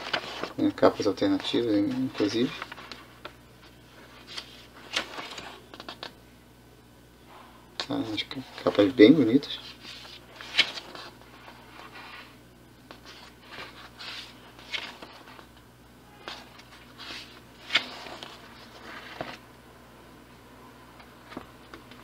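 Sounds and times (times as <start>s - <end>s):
comic book pages turning: 0.0s - 6.1s, 9.6s - 12.3s, 12.9s - 15.5s, 16.2s - 19.4s.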